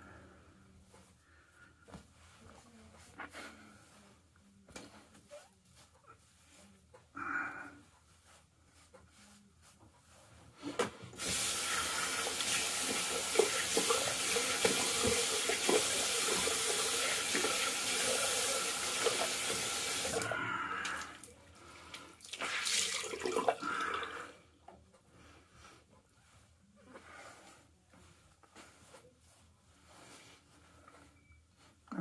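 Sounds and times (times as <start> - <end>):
rubbing sounds: 1.8 - 7.1, 7.8 - 20.1, 25.3 - 31.8
tap running into sink: 12.9 - 16.6.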